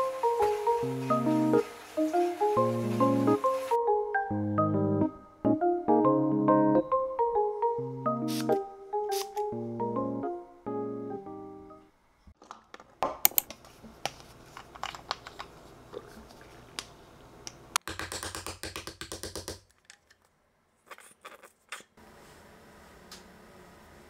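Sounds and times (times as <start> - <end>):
hands rubbing sunscreen: 8.3 - 9.4.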